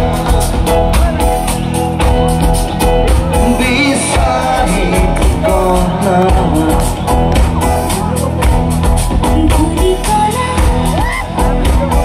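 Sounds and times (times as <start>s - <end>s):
live band playing: 0.0s - 12.0s
steady drum beat: 0.0s - 12.0s
person singing: 3.3s - 8.0s.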